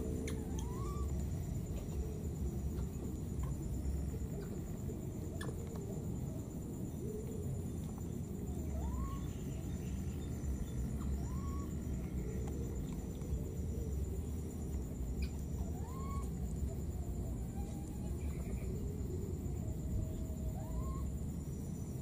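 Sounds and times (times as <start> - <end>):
baby monkey coo calls: 0.0 - 2.2, 8.7 - 9.7, 11.0 - 11.8, 15.2 - 19.0, 20.0 - 21.1
faint high whine: 0.0 - 22.0.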